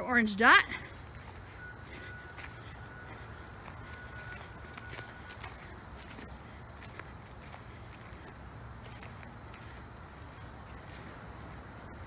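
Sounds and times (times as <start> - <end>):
high-pitched insect drone: 0.0 - 12.0
soft footsteps on dirt: 0.0 - 12.0.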